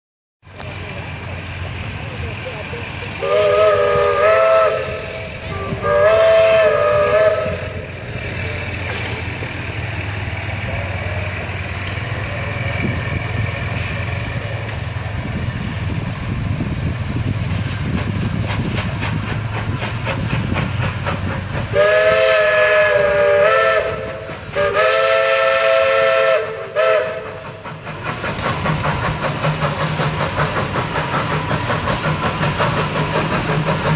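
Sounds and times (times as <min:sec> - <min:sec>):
steam locomotive whistle blasts: 0:03.2 - 0:07.9, 0:21.7 - 0:27.6.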